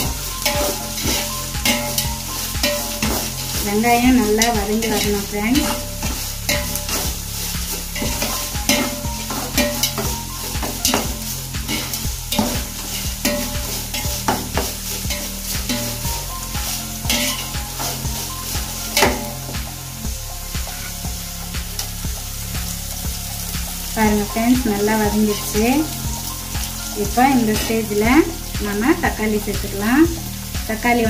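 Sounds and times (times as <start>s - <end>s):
metal spatula scraping a pot: 0.0s - 19.8s
onions sizzling in hot oil: 0.0s - 31.0s.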